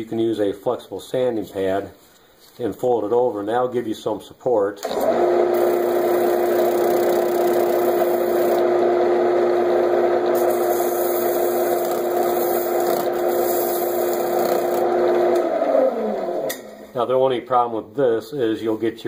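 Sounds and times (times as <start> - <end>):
wood lathe humming: 4.9 - 16.5
sandpaper hissing on wood: 10.4 - 14.8.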